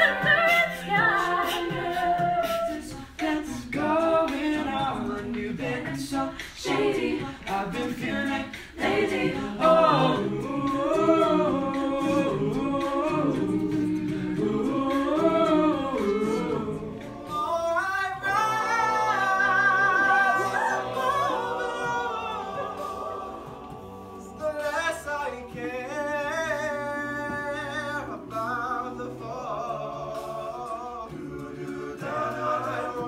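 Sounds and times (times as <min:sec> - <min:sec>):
a cappella group singing: 0:00.0 - 0:33.0
voices holding layered chords: 0:06.7 - 0:24.6.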